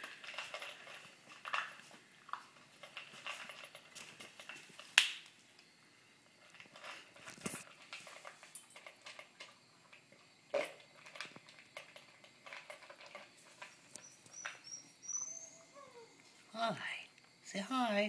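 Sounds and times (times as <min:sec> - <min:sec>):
dog crunching kibble: 0:00.0 - 0:05.1, 0:06.5 - 0:13.8.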